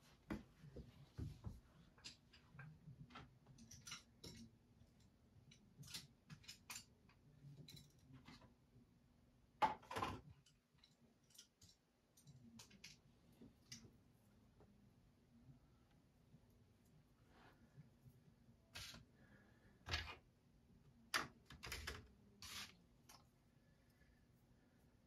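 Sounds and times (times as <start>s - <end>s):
small clicks and taps of brushes: 2.0s - 8.5s, 10.4s - 14.0s
faint steady hum: 10.3s - 25.0s.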